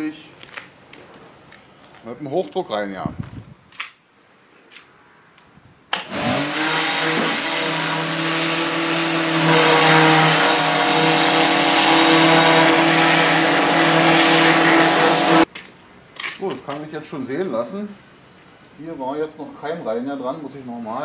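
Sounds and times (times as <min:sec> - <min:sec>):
pressure washer pump motor humming: 0:06.0 - 0:15.5
water jet hissing: 0:06.0 - 0:15.5.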